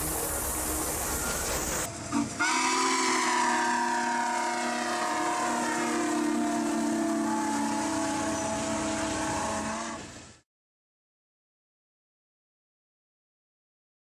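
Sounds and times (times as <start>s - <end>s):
multi-chime steam whistle: 0.0s - 10.2s
steam locomotive hiss and rumble: 0.0s - 10.4s.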